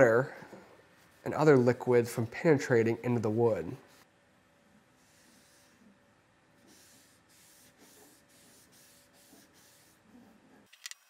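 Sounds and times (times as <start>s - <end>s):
faint room hum: 0.0s - 11.0s.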